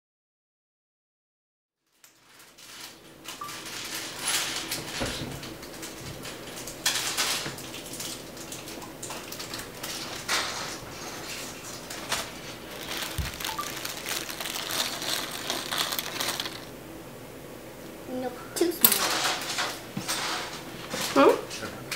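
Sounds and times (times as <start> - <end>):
packaging rustling and crinkling: 1.9 - 16.8.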